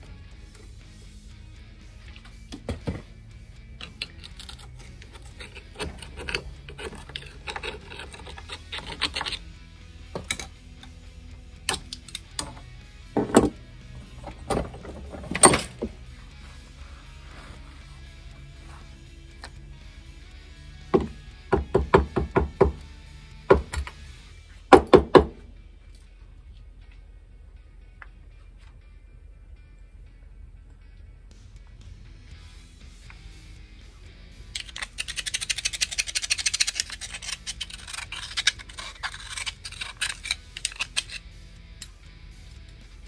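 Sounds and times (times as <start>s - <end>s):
background music: 0.0s - 43.0s
metal pick scraping and clicking: 3.8s - 9.5s, 10.1s - 11.0s, 11.6s - 15.9s, 34.5s - 42.0s
metal knocks against a vise: 21.0s - 22.8s.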